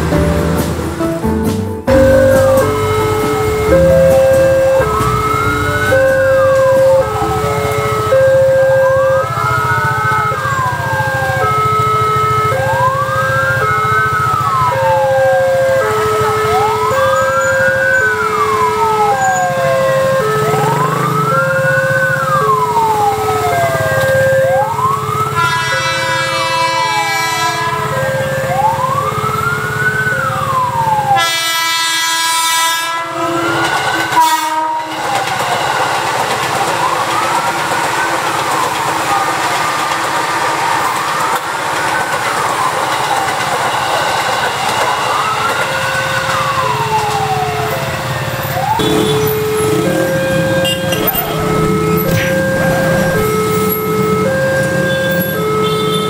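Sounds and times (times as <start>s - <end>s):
train wheels rumbling: 0.0s - 24.2s, 33.0s - 55.3s
two-tone electronic chime: 1.9s - 9.2s, 48.8s - 54.1s
train horn: 1.9s - 10.4s, 25.3s - 28.4s, 31.1s - 35.5s, 48.8s - 56.0s
rising and falling siren whoop: 2.0s - 35.7s, 36.5s - 39.8s, 44.6s - 56.0s.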